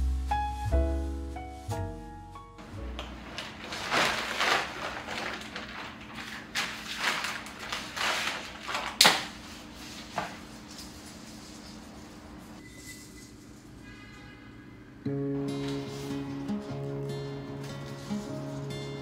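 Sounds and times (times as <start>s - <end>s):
plastic and paper wrapping crinkling: 2.6s - 12.6s, 17.6s - 18.7s
sharp crackle of wrapping: 3.2s - 11.0s.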